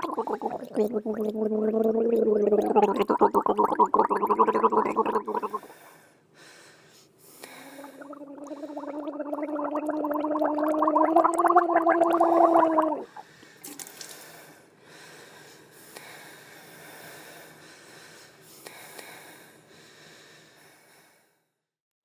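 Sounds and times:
bubbling gargle with voiced tone: 0.0s - 5.7s, 7.8s - 13.2s.

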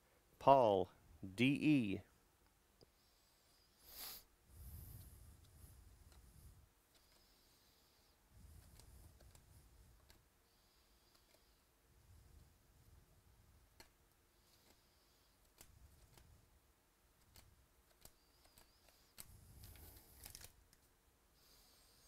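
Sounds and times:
trading cards flipping: 17.3s - 20.9s
foil pack crinkling: 19.7s - 20.6s.

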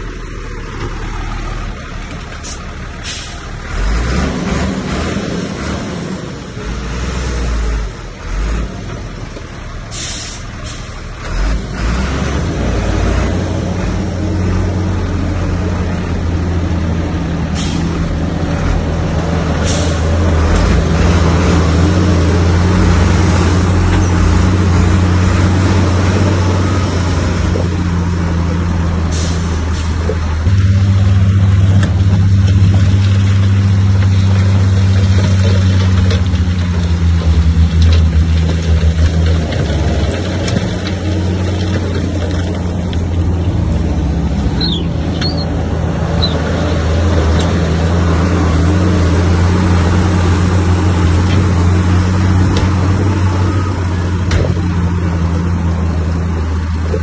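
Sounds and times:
heavy diesel engine under load: 0.0s - 57.0s
short air hisses: 9.9s - 10.9s.

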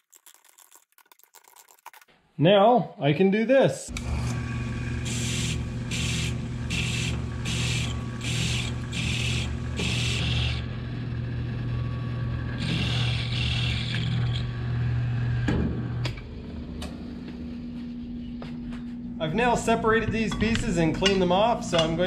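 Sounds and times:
milling machine spindle running: 3.9s - 14.8s.

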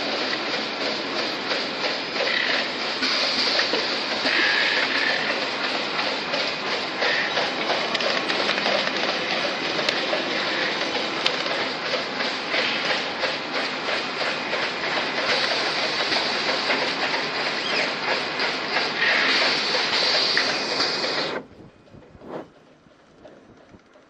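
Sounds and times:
machine hiss: 0.0s - 21.5s
packaging machine clattering: 7.0s - 11.8s.

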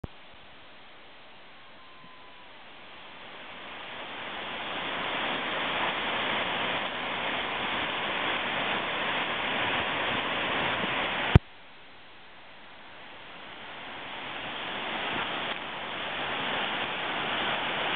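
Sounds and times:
water rushing over a weir: 0.0s - 11.8s, 12.6s - 17.9s.

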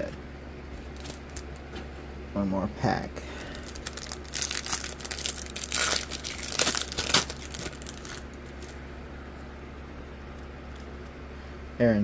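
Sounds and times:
card pack wrapper crinkling and tearing: 0.8s - 1.6s, 3.4s - 8.8s.

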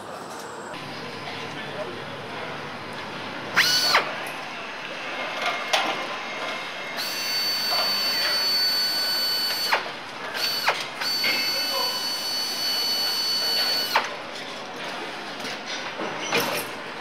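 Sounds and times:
factory floor background noise: 0.0s - 17.0s
electric power tool whining: 3.6s - 4.1s, 7.0s - 9.8s.

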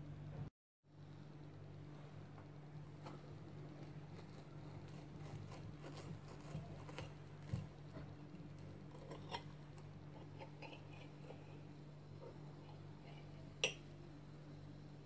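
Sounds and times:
steady low hum: 0.0s - 15.0s
knife sawing crackling toast: 3.0s - 7.8s
knife scraping and tapping plate: 10.2s - 11.5s.

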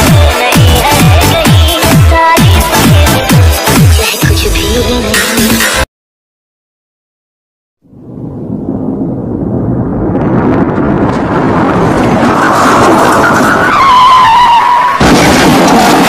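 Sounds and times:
harsh noise: 0.0s - 5.9s
tyres screeching: 12.3s - 15.2s.

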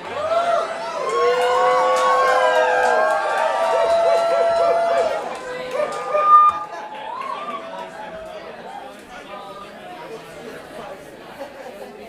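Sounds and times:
voices wailing and whooping: 0.0s - 8.2s.

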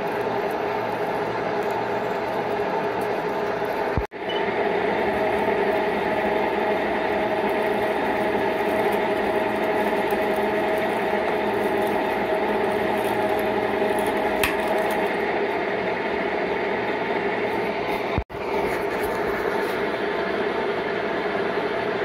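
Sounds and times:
metal lathe drilling with whine: 0.0s - 14.4s.

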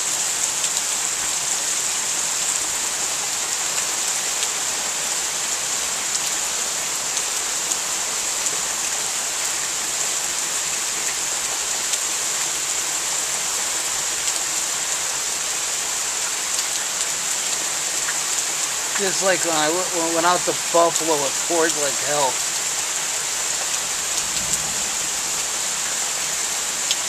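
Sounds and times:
heavy rain pouring: 0.0s - 27.0s
faint taps of raindrops: 16.2s - 19.6s, 23.5s - 24.8s, 26.8s - 27.0s.

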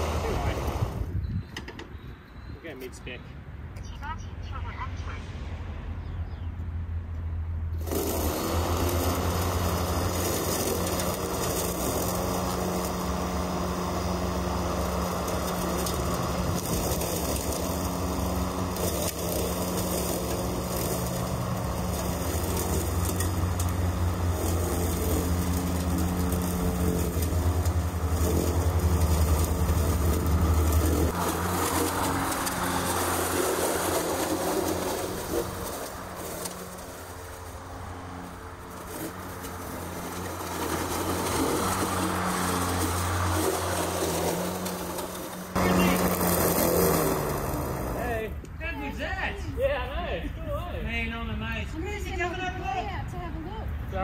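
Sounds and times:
grass being cut: 0.0s - 1.2s, 7.7s - 51.1s
mower motor hum: 0.0s - 2.0s, 7.8s - 48.6s.

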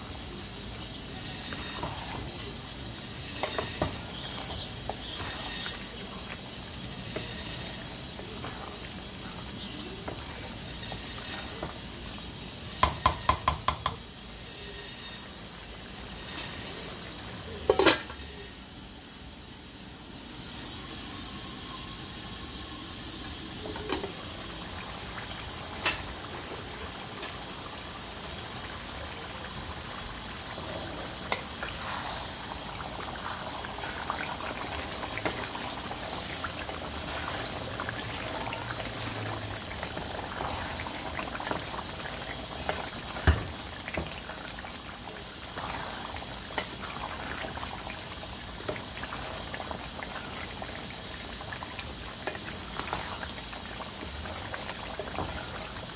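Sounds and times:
curry bubbling in a pot: 0.0s - 18.5s, 22.4s - 55.9s
utensil knocking against pot: 12.8s - 14.0s.

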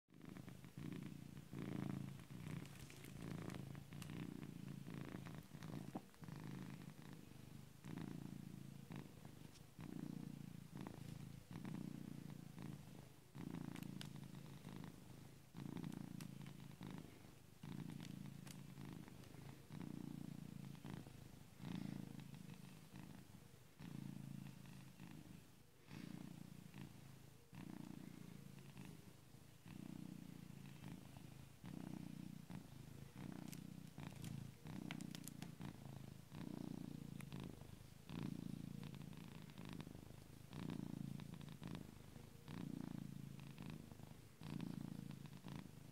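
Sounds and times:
cat purring: 0.1s - 45.9s.

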